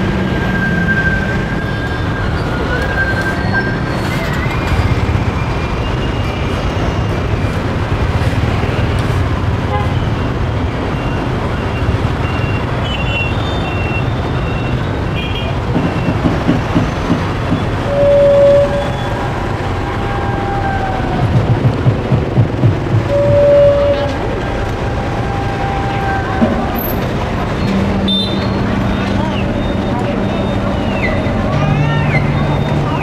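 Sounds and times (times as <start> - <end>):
horn toot: 17.8 - 19.4, 23.0 - 27.0.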